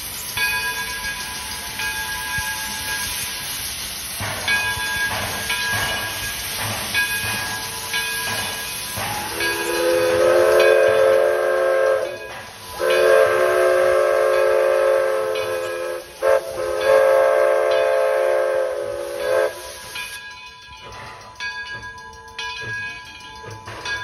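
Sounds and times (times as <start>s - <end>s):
steam hissing: 0.0s - 24.0s
steam locomotive whistle: 9.0s - 20.2s.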